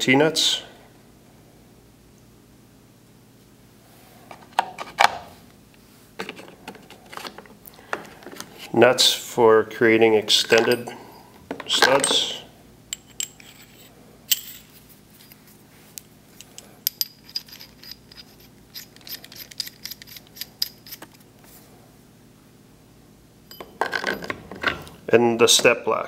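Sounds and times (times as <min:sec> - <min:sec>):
small metallic clicks and clinks: 0:16.4 - 0:21.2.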